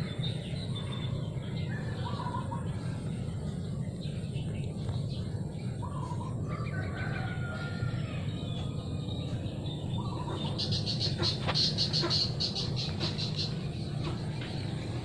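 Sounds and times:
rooster crowing: 0:06.5 - 0:08.4
small bird chirping: 0:08.4 - 0:15.0.

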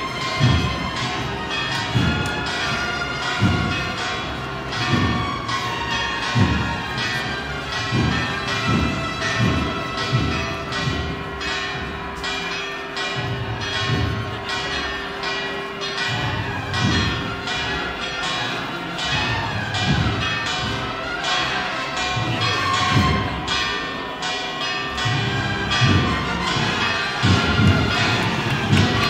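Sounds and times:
church bells pealing: 0:00.0 - 0:29.0.

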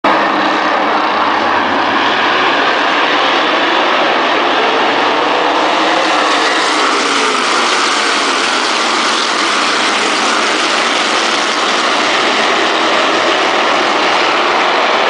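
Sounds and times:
race car engines roaring: 0:00.0 - 0:15.0.

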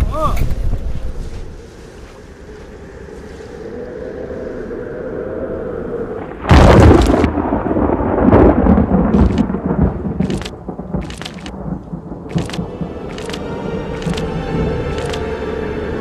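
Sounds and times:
wind: 0:00.0 - 0:16.0
thunder: 0:06.1 - 0:15.1
sharp cracks: 0:06.4 - 0:07.5, 0:09.0 - 0:09.6, 0:10.2 - 0:11.6, 0:12.3 - 0:14.3.

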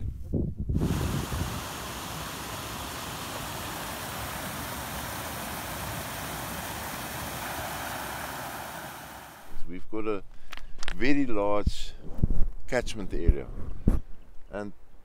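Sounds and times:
floodwater rushing down stream: 0:00.8 - 0:09.6.

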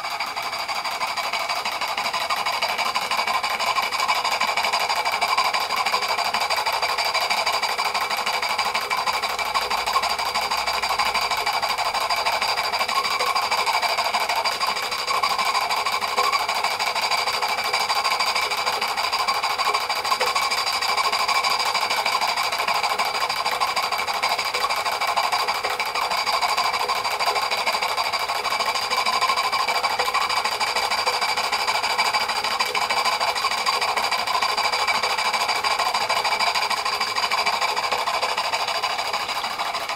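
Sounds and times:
model steam engine clattering: 0:00.0 - 0:39.9.

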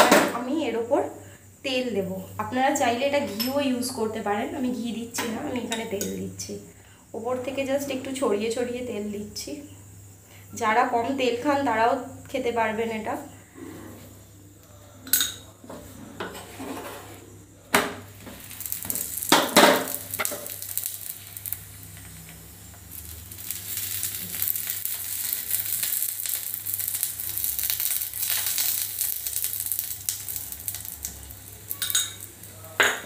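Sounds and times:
oil sizzling: 0:15.3 - 0:33.0.

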